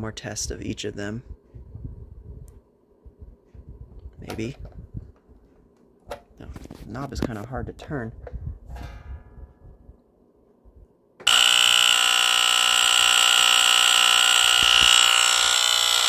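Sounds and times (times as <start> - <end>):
smoke alarm horn buzzing: 11.2 - 16.0.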